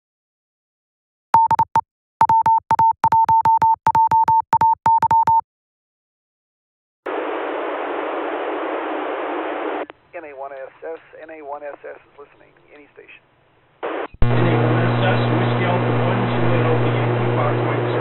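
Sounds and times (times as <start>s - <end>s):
morse code beeps: 1.4s - 5.4s
radio static hiss: 7.1s - 13.2s, 13.8s - 18.0s.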